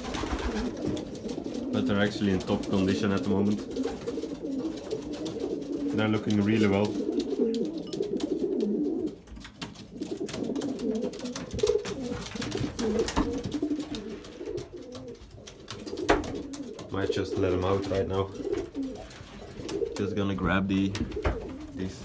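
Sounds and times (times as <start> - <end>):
wings flapping: 0.0 - 20.1
pigeons cooing: 0.0 - 22.0.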